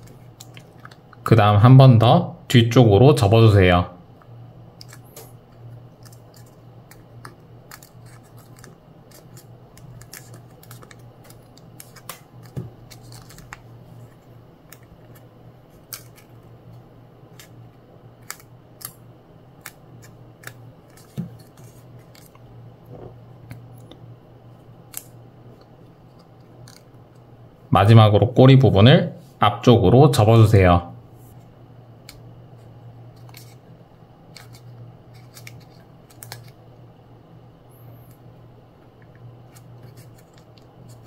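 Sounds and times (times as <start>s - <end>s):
faint steady low hum: 0.0s - 41.0s
paper crackling and rustling: 5.9s - 16.4s, 19.6s - 22.4s, 34.3s - 36.6s, 39.4s - 41.0s.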